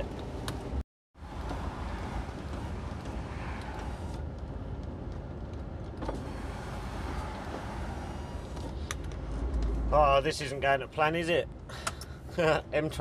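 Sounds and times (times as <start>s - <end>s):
diesel engine running: 1.2s - 10.2s.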